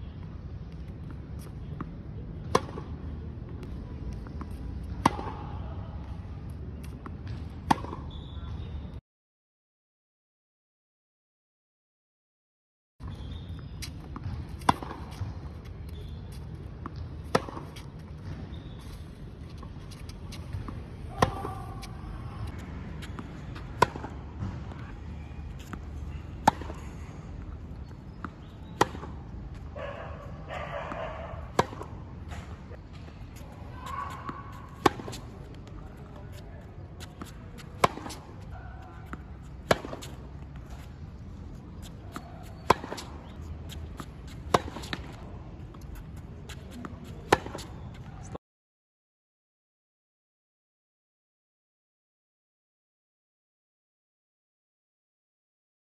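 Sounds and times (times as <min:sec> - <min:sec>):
tennis ball hitting racket strings: 0:33.8 - 0:35.4, 0:37.0 - 0:38.4, 0:39.0 - 0:40.9.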